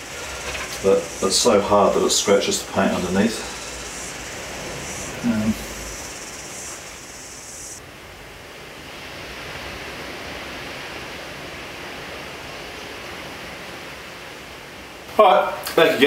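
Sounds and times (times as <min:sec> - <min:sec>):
high bright hiss: 0:00.0 - 0:07.8
steady background hiss: 0:00.0 - 0:16.0.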